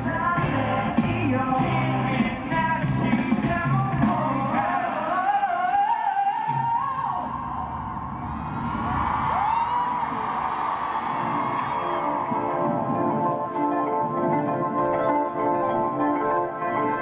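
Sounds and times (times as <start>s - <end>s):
bass guitar: 0.0s - 4.6s
male vocal group singing: 0.0s - 7.4s
drums: 0.0s - 16.9s.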